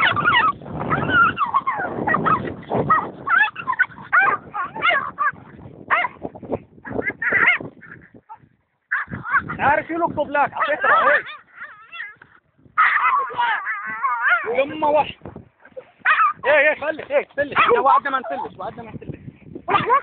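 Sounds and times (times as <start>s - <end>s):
dogs fighting yelping and whining: 0.0s - 6.2s, 6.8s - 9.6s, 10.5s - 14.8s, 16.0s - 16.5s, 17.6s - 17.8s, 19.7s - 20.0s.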